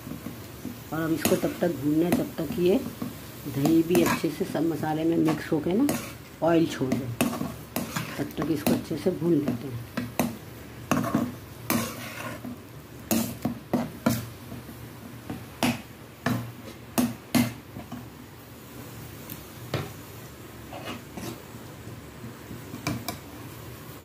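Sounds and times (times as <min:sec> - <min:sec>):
thick sauce frying in oil: 0:00.0 - 0:24.0
spatula scraping a pan: 0:00.2 - 0:18.1, 0:20.6 - 0:21.6.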